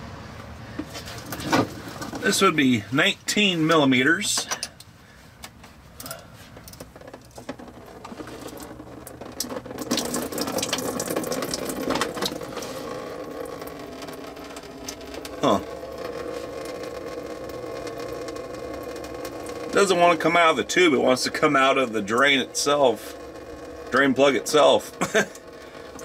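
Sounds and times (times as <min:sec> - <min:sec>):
coolant draining in a stream: 0:06.7 - 0:26.0.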